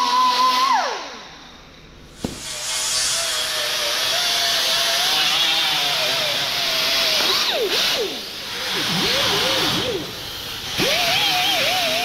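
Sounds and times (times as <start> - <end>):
air exhaust hiss: 1.2 - 4.1
air grinder grinding metal: 2.2 - 12.0.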